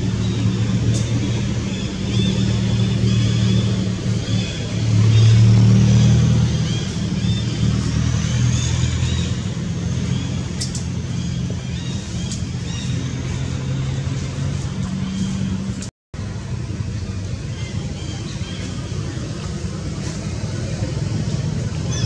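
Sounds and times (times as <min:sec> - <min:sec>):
motor vehicle engine running: 0:00.0 - 0:22.0.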